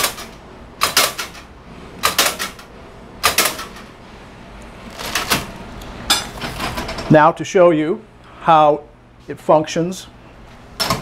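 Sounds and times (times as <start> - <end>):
vending machine shelves dropping: 4.9 - 7.2, 10.8 - 11.0.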